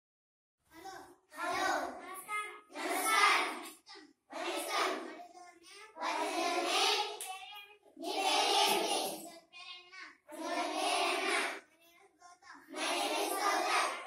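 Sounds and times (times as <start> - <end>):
children singing in unison: 2.8 - 3.6, 4.3 - 5.1, 6.0 - 7.2, 8.0 - 9.2, 10.3 - 11.6, 12.7 - 14.0.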